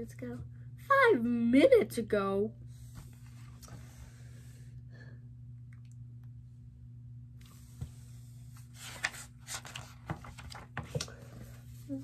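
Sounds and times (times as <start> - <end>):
steady low hum: 0.0 - 12.0
book pages rustling: 7.8 - 11.9.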